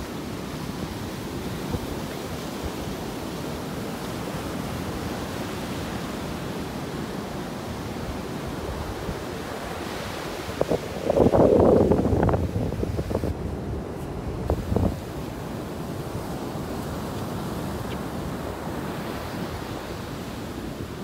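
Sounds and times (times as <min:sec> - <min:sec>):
waves washing on sand: 0:00.0 - 0:21.0
wind on microphone: 0:08.2 - 0:20.0.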